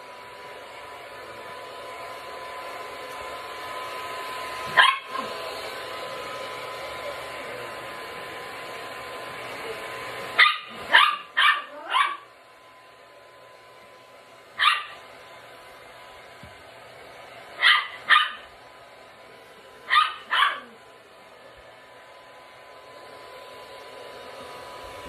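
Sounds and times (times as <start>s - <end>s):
hair dryer blowing: 0.0s - 25.0s
dog barking: 4.7s - 5.3s, 10.4s - 12.3s, 14.6s - 15.0s, 17.6s - 18.5s, 19.9s - 20.8s.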